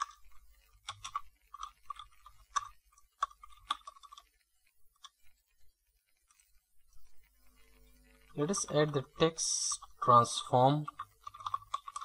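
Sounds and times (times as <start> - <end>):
computer keyboard keys clicking: 10.8 - 12.0.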